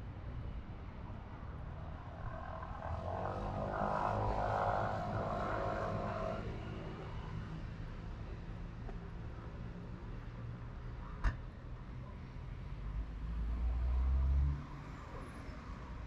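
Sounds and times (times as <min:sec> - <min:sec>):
engine drone passing by: 0:01.1 - 0:07.8.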